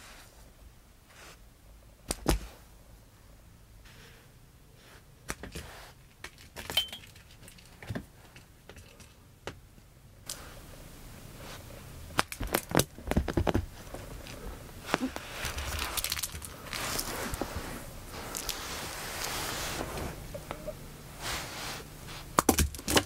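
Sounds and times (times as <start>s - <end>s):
cat playing on carpet: 13.1s - 20.2s.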